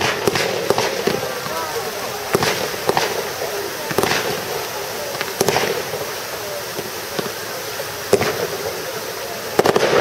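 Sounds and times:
fireworks bursting with sharp bangs: 0:00.0 - 0:10.0
steady background noise: 0:00.0 - 0:10.0.

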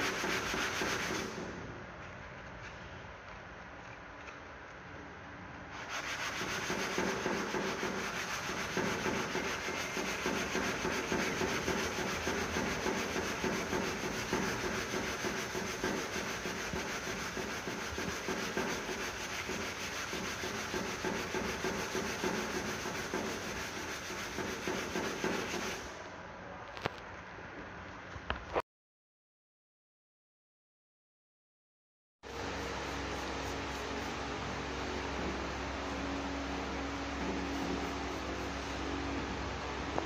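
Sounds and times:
sandpaper rubbing back and forth: 0:00.0 - 0:01.5, 0:05.7 - 0:26.0.

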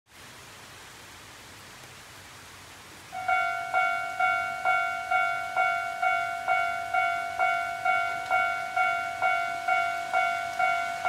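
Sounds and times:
steady background hiss: 0:00.2 - 0:11.0
level crossing warning bell: 0:03.2 - 0:11.0.

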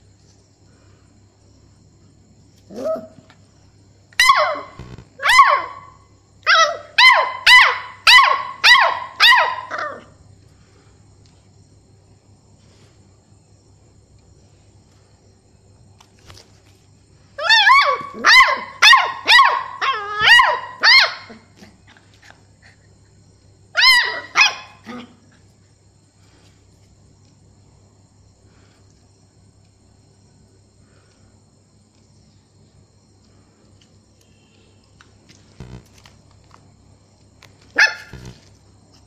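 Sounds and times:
puppy yapping barks: 0:04.2 - 0:10.1, 0:17.4 - 0:21.4, 0:23.8 - 0:25.2, 0:37.8 - 0:38.2.

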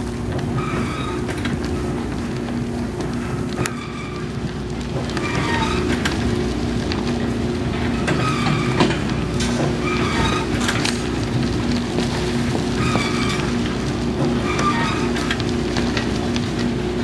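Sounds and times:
machinery drone: 0:00.0 - 0:17.0
machinery squeals: 0:00.6 - 0:01.4, 0:03.6 - 0:04.4, 0:05.2 - 0:06.1, 0:07.9 - 0:09.0, 0:09.8 - 0:10.8, 0:12.8 - 0:13.6, 0:14.4 - 0:15.3.

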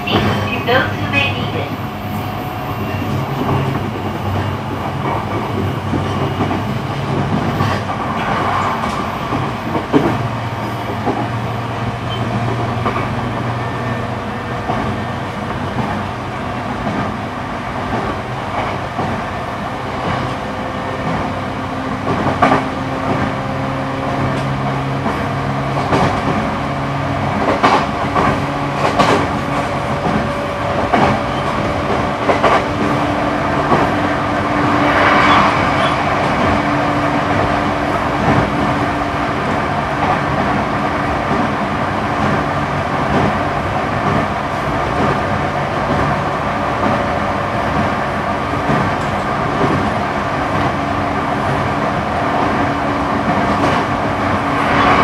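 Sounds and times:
train wheels rumbling on rail: 0:00.0 - 0:55.0
rail-joint clacks: 0:02.8 - 0:11.4, 0:20.0 - 0:26.6, 0:27.3 - 0:34.1, 0:34.8 - 0:55.0.

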